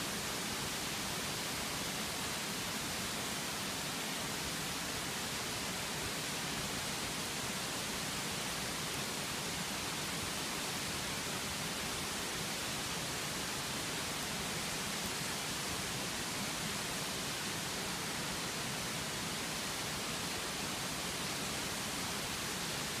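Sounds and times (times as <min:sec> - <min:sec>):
steady background hiss: 0:00.0 - 0:23.0.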